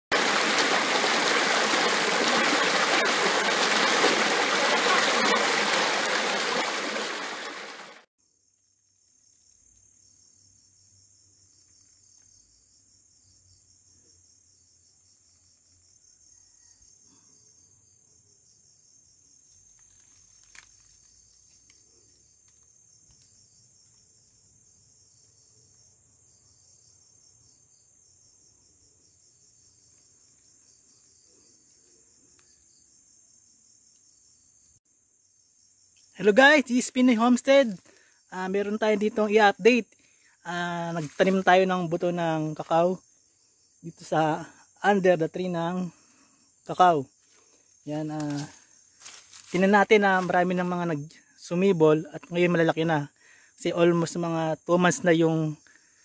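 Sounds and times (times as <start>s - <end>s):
stream rushing over rocks: 0.0s - 8.1s
insects chirring: 0.1s - 56.0s.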